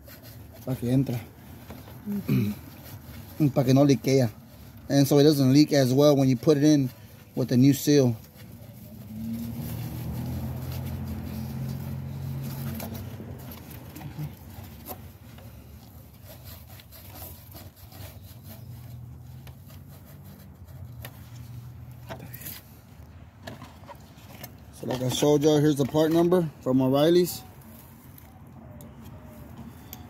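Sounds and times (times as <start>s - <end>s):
scuff pad scrubbing metal: 0.0s - 22.8s.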